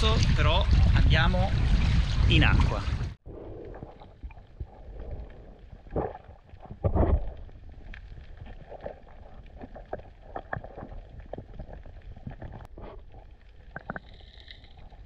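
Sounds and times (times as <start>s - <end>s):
underwater air bubbles gurgling: 0.3s - 15.0s
soft crackling and small clicks: 4.0s - 15.0s.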